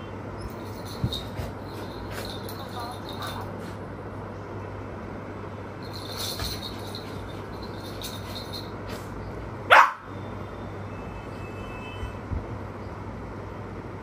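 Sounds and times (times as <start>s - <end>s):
short high dog bark: 9.7s - 10.1s.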